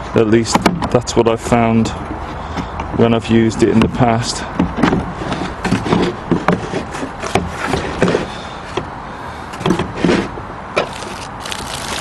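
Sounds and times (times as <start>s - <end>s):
plastic wrapping rustling: 10.8s - 12.0s.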